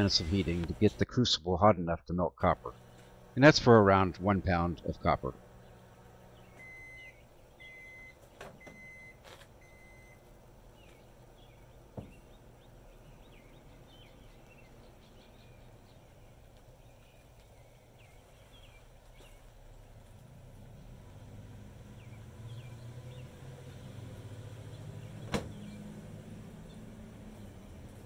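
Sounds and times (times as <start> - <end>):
microwave oven beeping: 5.5 - 10.3.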